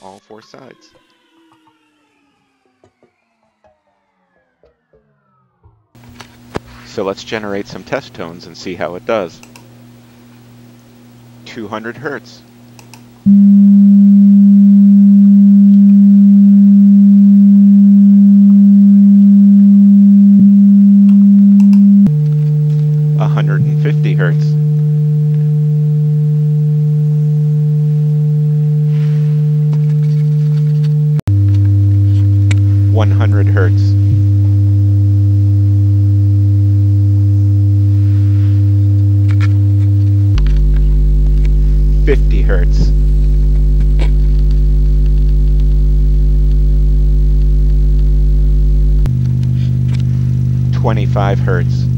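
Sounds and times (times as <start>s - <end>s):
low test tone hum: 13.2s - 51.9s.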